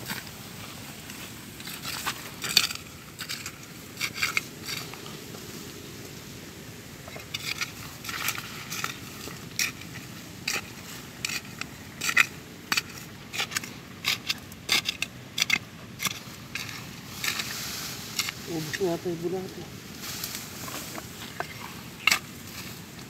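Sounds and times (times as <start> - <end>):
trowel scraping dry soil: 0.0 - 5.2, 7.0 - 19.0, 19.9 - 23.0.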